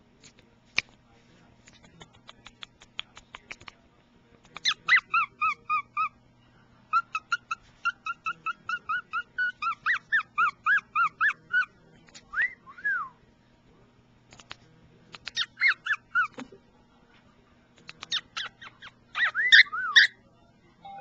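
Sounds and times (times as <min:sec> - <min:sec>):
cockatiel whistling: 0:19.2 - 0:20.2.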